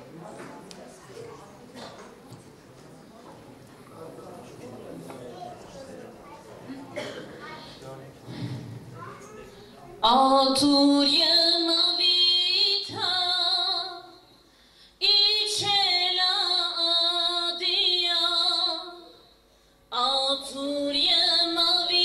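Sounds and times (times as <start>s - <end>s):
woman singing unaccompanied: 10.0s - 14.2s, 15.0s - 19.1s, 19.9s - 22.0s.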